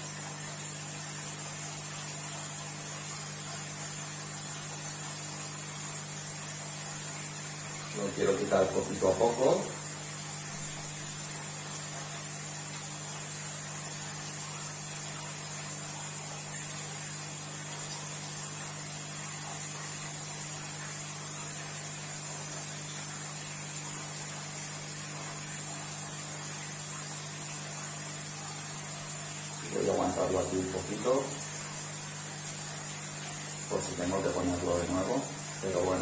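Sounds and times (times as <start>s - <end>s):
electrical hum: 0.0s - 36.0s.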